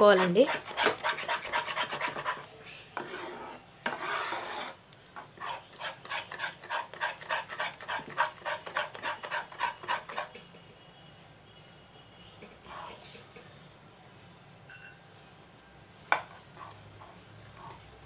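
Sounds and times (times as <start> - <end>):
metal spatula scraping batter in pan: 0.2 - 4.8.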